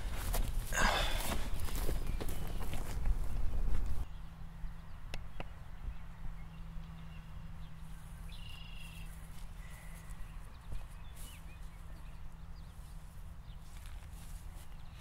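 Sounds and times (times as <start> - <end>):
bird chirps: 4.0 - 12.8.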